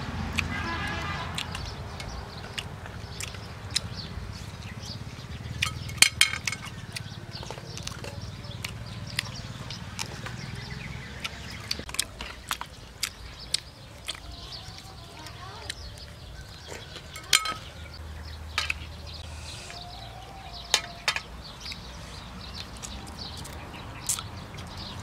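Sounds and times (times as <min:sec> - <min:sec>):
chewing food: 0:00.1 - 0:25.0
chopsticks clicking on plates: 0:01.4 - 0:03.9, 0:05.6 - 0:16.0, 0:16.6 - 0:18.9, 0:20.6 - 0:21.9.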